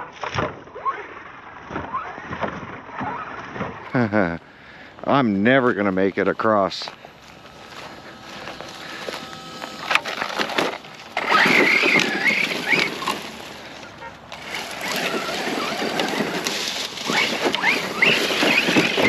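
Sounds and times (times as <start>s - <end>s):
footsteps crunching through dry grass: 4.5s - 19.0s
twigs snapping: 6.9s - 19.0s.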